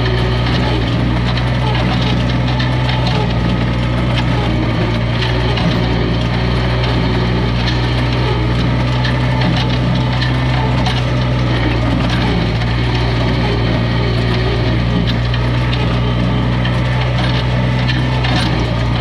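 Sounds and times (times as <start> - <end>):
tractor engine running: 0.0 - 19.0.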